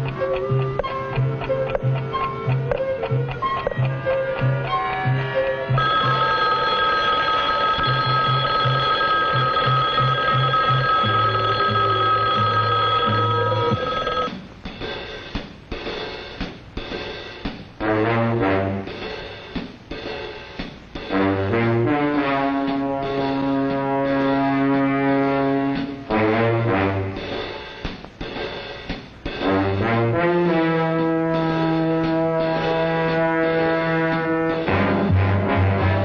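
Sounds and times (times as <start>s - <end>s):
orchestral music with brass: 17.8s - 19.3s, 21.1s - 27.6s, 29.4s - 36.0s.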